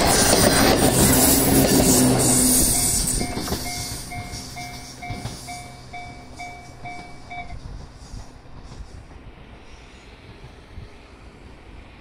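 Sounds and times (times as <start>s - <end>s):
electric train running: 0.0s - 12.0s
level-crossing warning bell: 1.4s - 7.6s.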